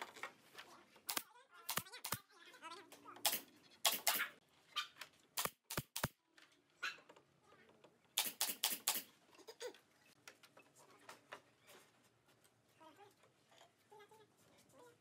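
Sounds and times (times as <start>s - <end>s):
nail gun firing: 3.2s - 4.3s, 5.4s - 6.2s, 8.2s - 9.1s.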